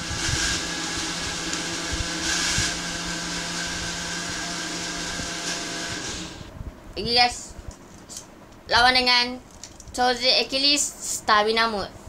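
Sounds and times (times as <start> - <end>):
motorised machine humming: 0.0 - 6.6.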